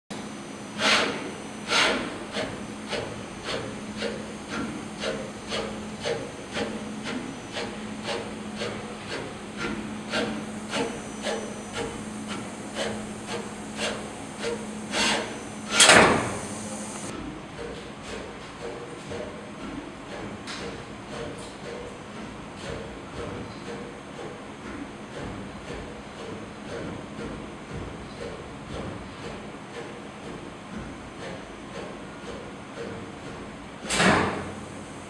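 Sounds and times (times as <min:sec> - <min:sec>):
low machine hum: 0:00.2 - 0:17.1
gantry rubbing strokes: 0:00.8 - 0:17.1.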